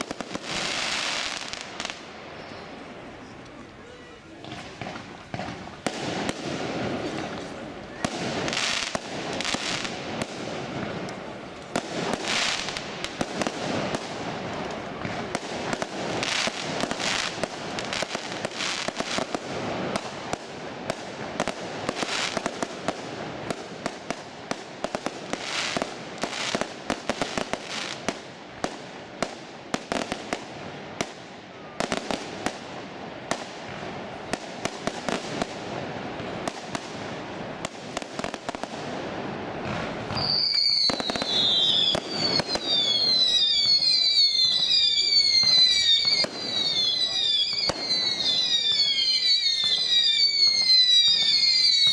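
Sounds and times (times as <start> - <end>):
fireworks cracking and popping: 0.0 - 51.9
fireworks crackle: 0.0 - 51.9.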